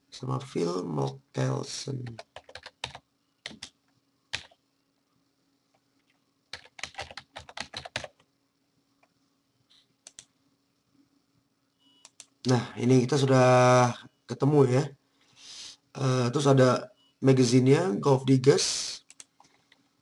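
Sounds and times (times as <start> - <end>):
computer keyboard typing: 2.0 - 4.6, 6.0 - 8.3, 10.0 - 10.3, 12.0 - 12.4, 19.0 - 19.3.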